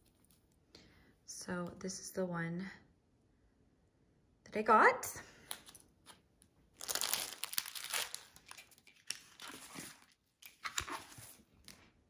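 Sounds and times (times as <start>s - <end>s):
plastic film crinkling: 5.5s - 11.2s.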